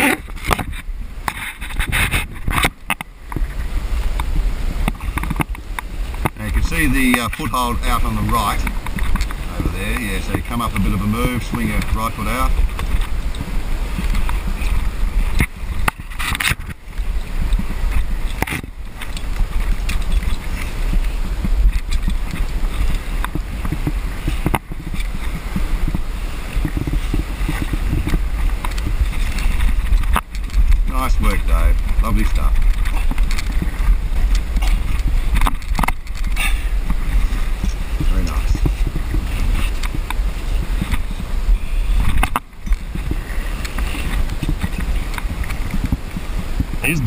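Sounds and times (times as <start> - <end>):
scrapes and knocks against rock: 0.0 - 47.0
wind buffeting microphone: 0.0 - 47.0.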